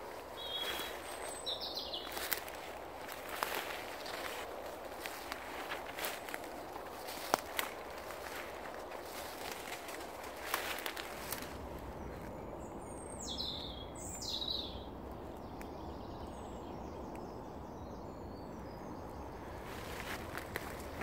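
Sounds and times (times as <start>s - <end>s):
bird falling calls: 0.0s - 12.3s
footsteps through undergrowth: 0.0s - 12.4s, 19.5s - 21.0s
steady background noise: 0.0s - 21.0s
faint bird chirps: 0.1s - 4.3s.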